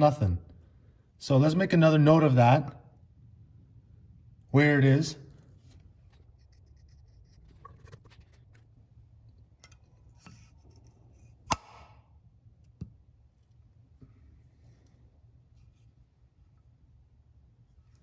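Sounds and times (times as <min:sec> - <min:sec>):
small taps and scratches: 0:05.6 - 0:08.8.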